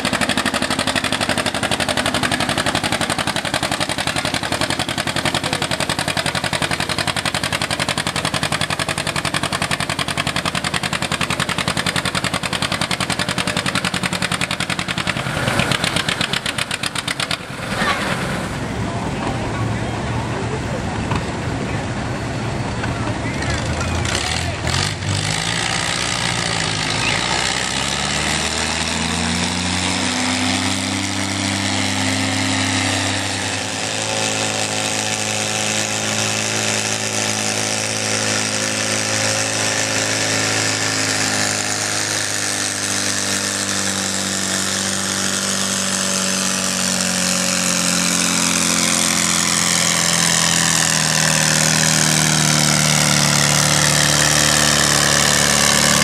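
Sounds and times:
tractor engine under load: 0.0s - 56.0s.

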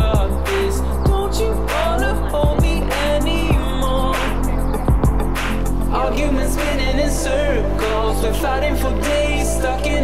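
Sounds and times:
background music with drums: 0.0s - 6.0s.

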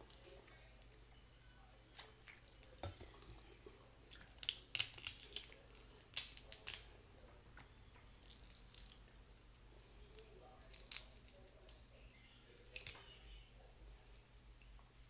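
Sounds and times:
crab shells cracking: 4.1s - 6.9s, 8.2s - 9.6s, 10.2s - 11.8s, 12.6s - 13.0s.

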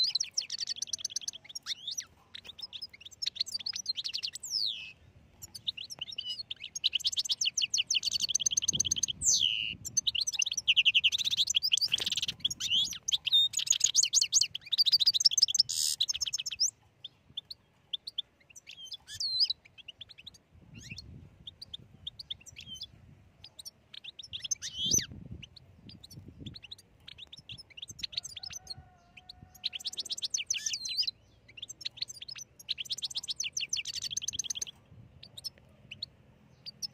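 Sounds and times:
goldfinch singing: 0.0s - 36.9s.

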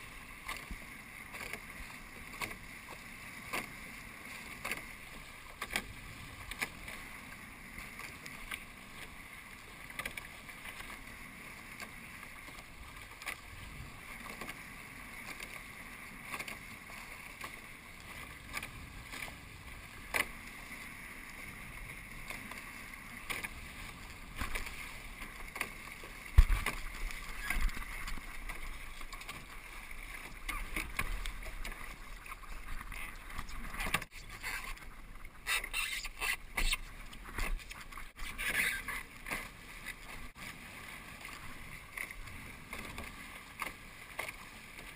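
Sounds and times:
boat hulls rushing through water: 0.0s - 44.9s
waves knocking and splashing: 0.0s - 44.9s.

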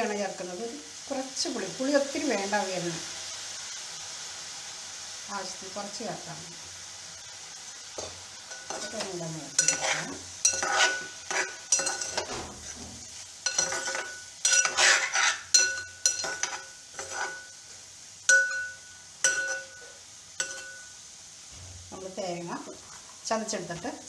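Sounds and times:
spoon scraping vegetables: 7.9s - 20.9s
spoon clinking against metal pot: 8.5s - 12.3s, 13.4s - 17.6s, 18.3s - 21.0s.

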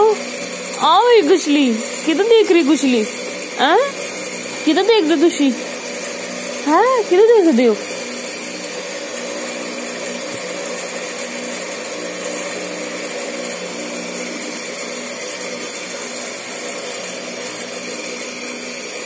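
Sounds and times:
electric motor whirring: 0.0s - 19.0s.

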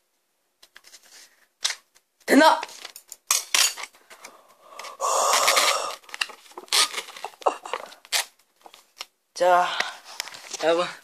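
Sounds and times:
lid scraping and tearing: 4.8s - 8.3s
paper-foil lid rustling: 5.4s - 8.8s.

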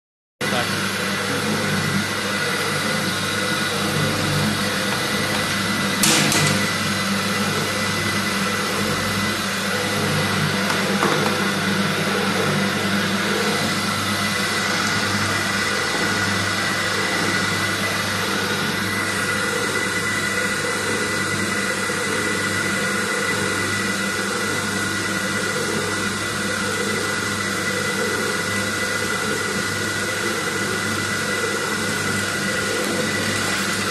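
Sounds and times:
mixer machine hum with whine: 0.4s - 33.9s.

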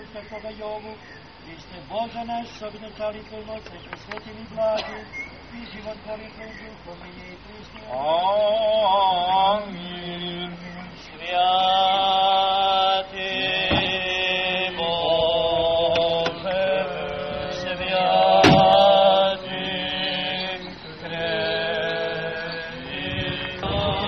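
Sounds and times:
chanting in long held notes: 0.0s - 24.0s
sharp click: 3.6s - 4.3s.

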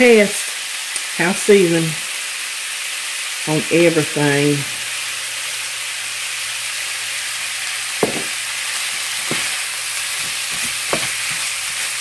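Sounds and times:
meat sizzling in a skillet: 0.0s - 12.0s
wooden spoon knocking on pan: 8.0s - 8.4s, 9.2s - 9.6s, 10.2s - 11.8s.

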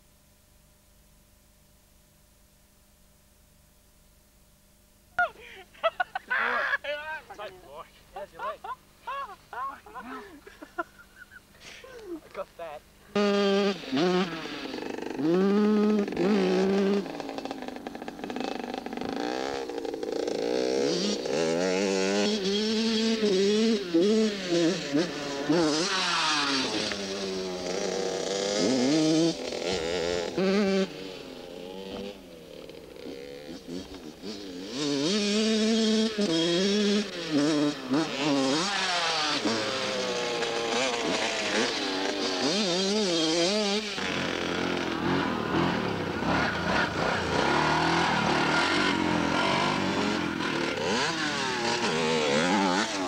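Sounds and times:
go-kart engine revving: 13.1s - 53.0s.

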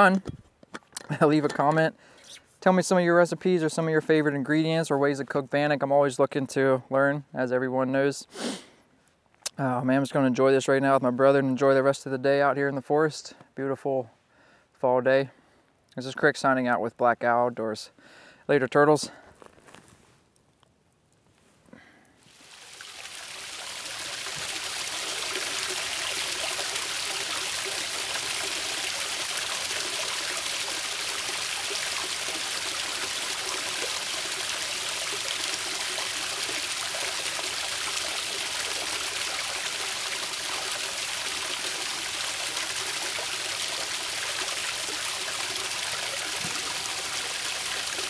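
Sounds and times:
creek water babbling over rocks: 22.2s - 48.0s.

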